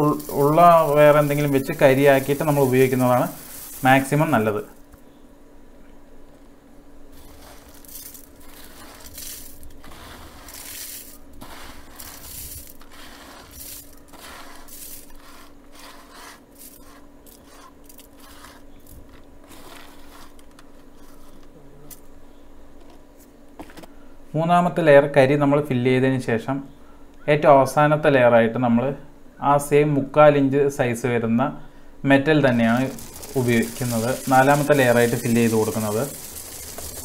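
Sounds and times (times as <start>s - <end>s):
charcoal pieces clinking and scraping: 0.0s - 4.8s, 7.2s - 21.4s, 32.5s - 37.0s
water trickling: 32.5s - 37.0s.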